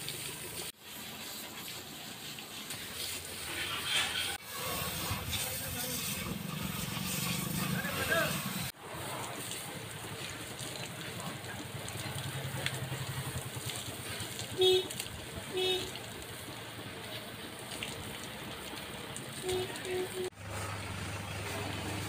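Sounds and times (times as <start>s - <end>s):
pressure washer jet hissing: 0.0s - 11.0s.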